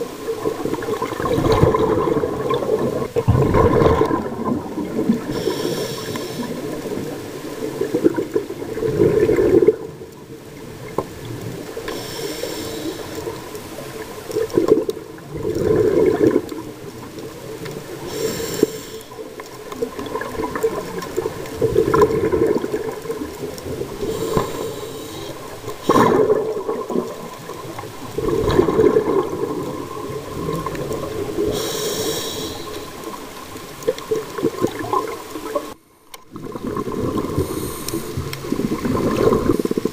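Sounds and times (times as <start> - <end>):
exhaled bubbles rushing: 0.0 - 5.5, 6.1 - 11.8, 14.2 - 18.1, 19.6 - 24.6, 25.5 - 31.6, 33.0 - 39.9
regulator hissing inhale: 5.2 - 6.9, 11.8 - 13.4, 18.0 - 19.3, 24.0 - 26.3, 31.4 - 33.2, 37.4 - 38.4.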